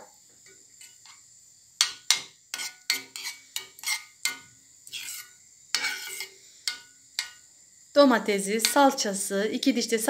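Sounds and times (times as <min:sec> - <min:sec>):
metal spoon scraping a pan: 0:00.4 - 0:01.2, 0:01.8 - 0:07.5, 0:08.6 - 0:09.0.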